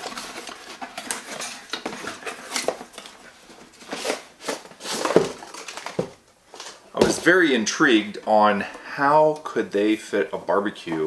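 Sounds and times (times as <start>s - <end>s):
cardboard rustling and scraping: 0.0s - 7.4s.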